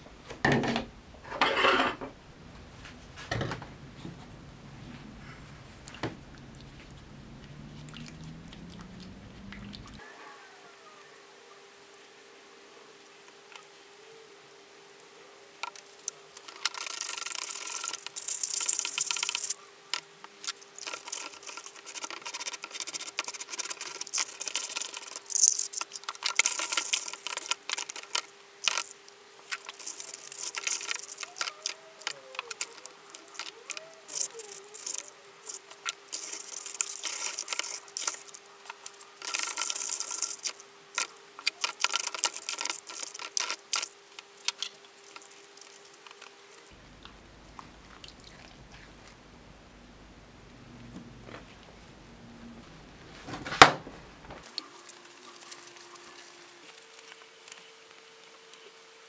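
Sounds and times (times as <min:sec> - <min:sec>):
faint steady hum: 0:00.0 - 0:59.0
brush scrubbing: 0:20.4 - 0:28.9, 0:29.5 - 0:46.4.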